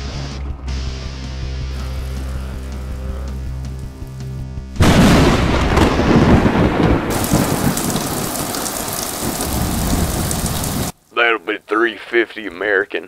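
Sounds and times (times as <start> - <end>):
heavy rain: 1.8 - 4.2, 4.8 - 11.1
thunderclap rumbling: 4.8 - 11.0.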